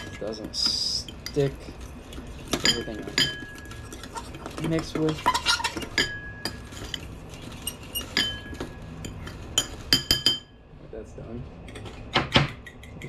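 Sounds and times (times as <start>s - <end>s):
fork clinking against bowl: 2.1s - 10.5s.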